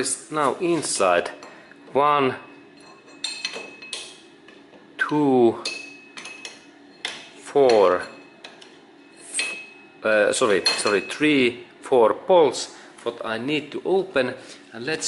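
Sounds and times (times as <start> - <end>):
metallic ring: 2.4 - 4.3, 5.0 - 11.4
steel tool clinking on metal: 2.8 - 4.2, 5.0 - 9.8, 10.5 - 11.2.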